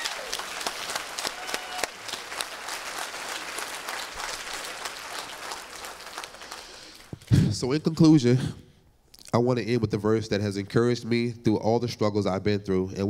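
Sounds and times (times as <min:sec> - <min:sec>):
congregation applauding: 0:00.0 - 0:07.4.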